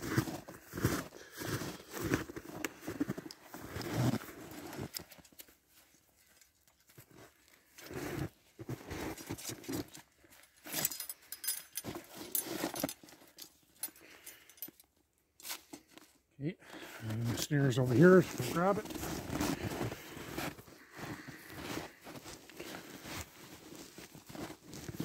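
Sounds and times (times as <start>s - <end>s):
footsteps crunching snow: 0.0s - 4.8s, 17.0s - 25.0s
metal cable rattling and clinking: 9.2s - 14.9s.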